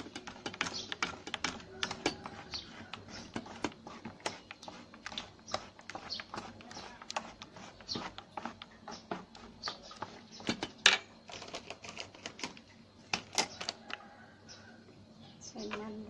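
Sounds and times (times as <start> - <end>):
spoon scraping metal bowl: 0.0 - 12.6.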